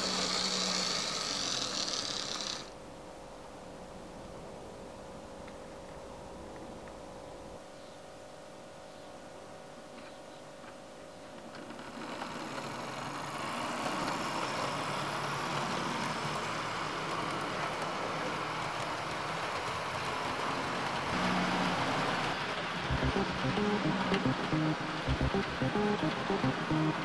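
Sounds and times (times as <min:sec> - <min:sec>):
model train whirr and rattle: 0:00.0 - 0:02.8, 0:11.4 - 0:22.9
low hum: 0:22.9 - 0:27.0.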